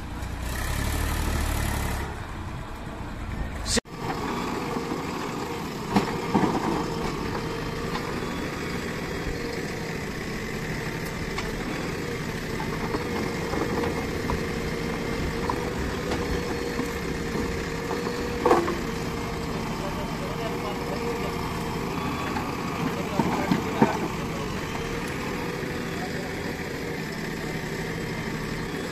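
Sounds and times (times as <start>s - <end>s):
diesel engine running: 0.0s - 28.9s
backhoe digging stones and earth: 3.4s - 28.9s.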